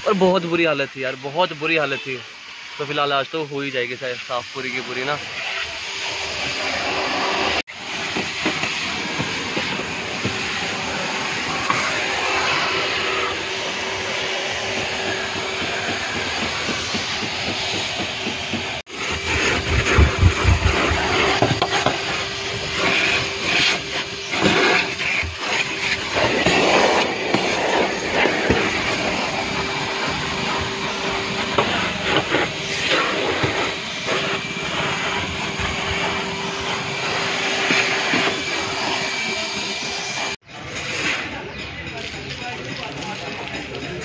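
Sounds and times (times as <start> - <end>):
vacuum cleaner running: 0.0 - 40.4
nozzle bumping and scraping carpet: 14.6 - 22.2, 22.8 - 29.4.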